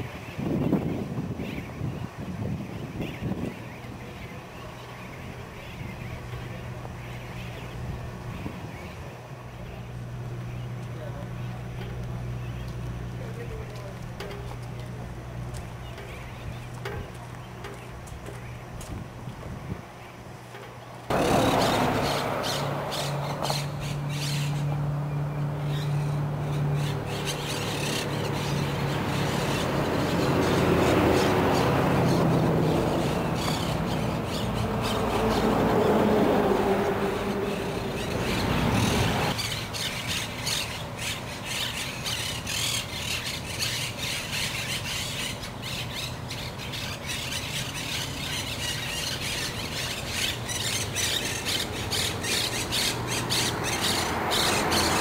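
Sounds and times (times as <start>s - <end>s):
low hum: 5.4s - 39.4s
parakeets squawking: 21.1s - 55.0s.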